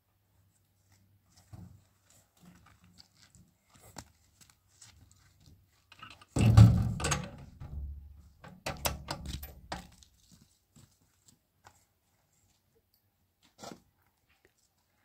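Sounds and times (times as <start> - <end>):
heavy thump: 6.4 - 8.2
sharp knocks and clatters: 6.4 - 10.0.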